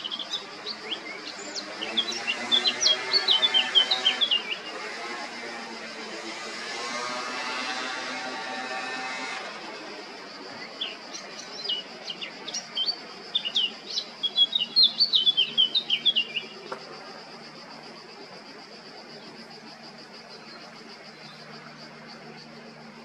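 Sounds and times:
bird warbling song: 0.0 - 5.0, 10.5 - 16.7
insect buzz: 0.0 - 23.0.

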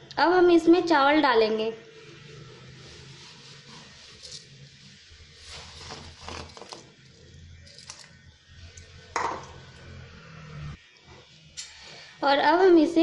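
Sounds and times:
rice rustling and splashing: 2.0 - 6.9.

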